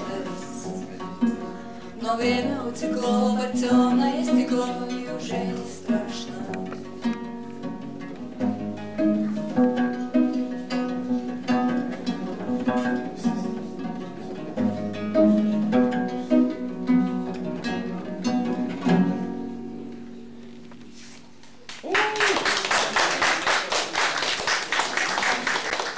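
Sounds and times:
plucked viola da gamba: 0:00.0 - 0:21.4.

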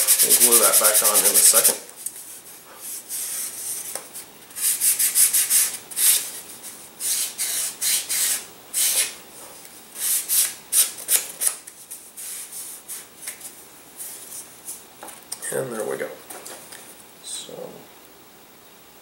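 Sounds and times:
sanding block rubbing wood: 0:00.0 - 0:01.8, 0:04.6 - 0:06.4, 0:07.0 - 0:09.2.

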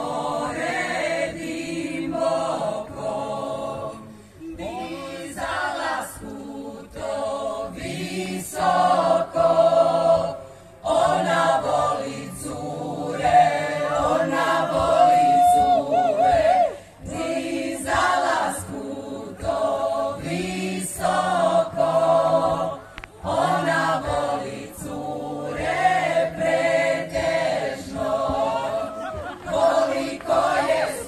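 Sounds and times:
large mixed choir singing: 0:00.0 - 0:31.0.

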